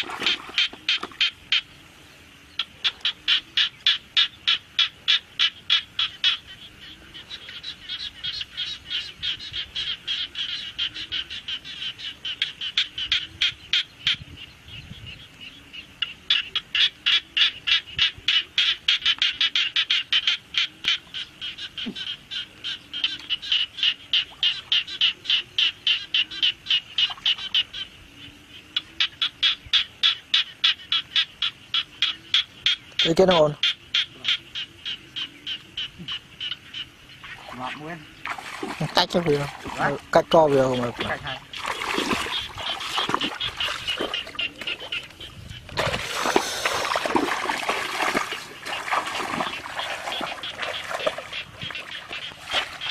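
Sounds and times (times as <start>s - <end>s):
frogs calling: 0.0s - 52.9s.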